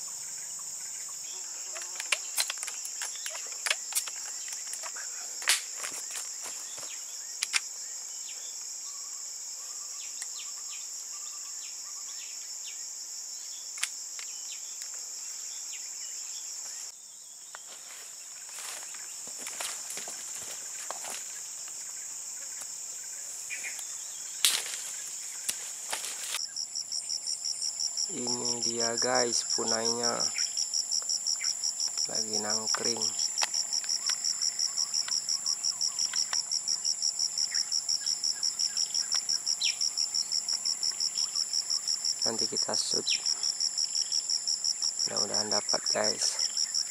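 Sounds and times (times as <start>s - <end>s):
insects droning: 0.0s - 46.9s
sharp clicks and snaps: 1.8s - 5.7s.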